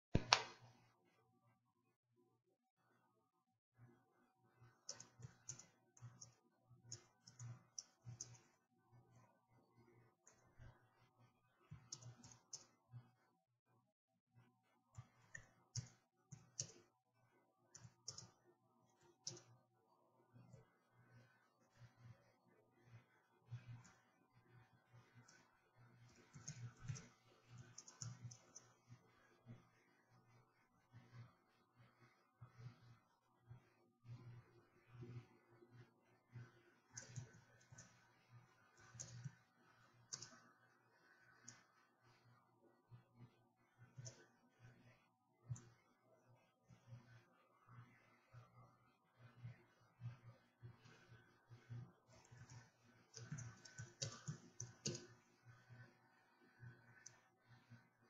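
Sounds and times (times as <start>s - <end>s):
keyboard key clicks: 0.2s - 0.6s.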